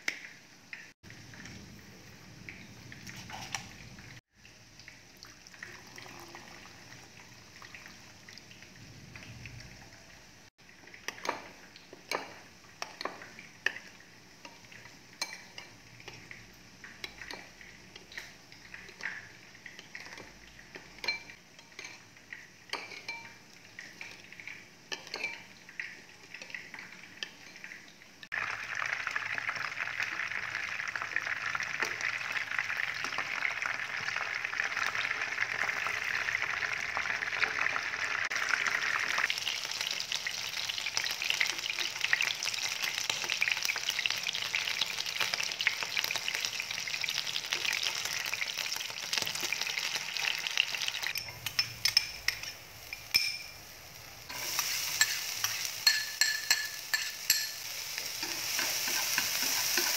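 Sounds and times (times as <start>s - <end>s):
chicken frying in oil: 0.0s - 59.9s
water poured into bowl: 5.2s - 7.1s
spoon stirring and clinking bowl: 11.1s - 24.3s, 24.9s - 27.8s, 51.1s - 53.6s, 54.3s - 59.9s.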